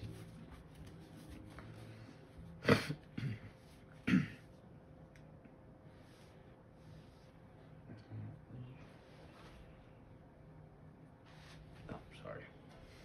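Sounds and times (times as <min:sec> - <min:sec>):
person coughing: 0:02.6 - 0:04.5.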